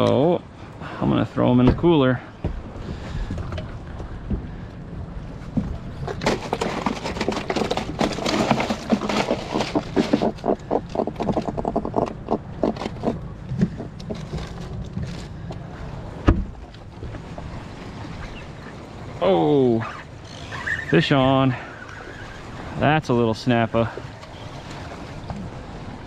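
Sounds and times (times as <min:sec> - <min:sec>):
fish flopping in a cooler: 0:06.0 - 0:15.7.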